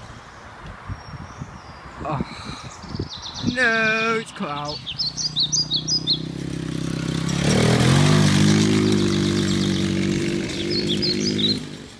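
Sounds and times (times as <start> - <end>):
quad bike engine revving: 3.7 - 11.9.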